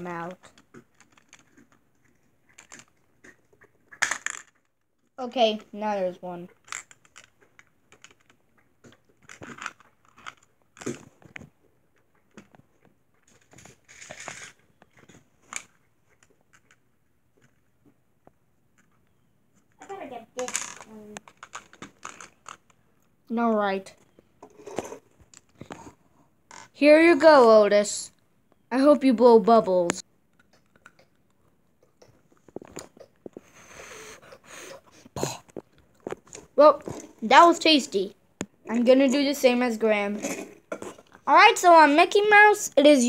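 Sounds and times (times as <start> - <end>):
person chewing: 30.3 - 33.6.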